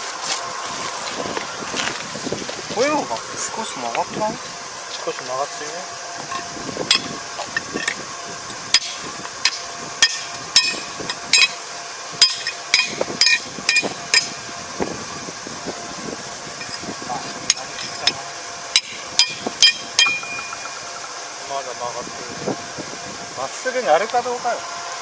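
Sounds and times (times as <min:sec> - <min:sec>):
hammer striking steel: 0:06.3 - 0:07.1, 0:08.7 - 0:11.6, 0:12.2 - 0:14.4, 0:18.8 - 0:20.8.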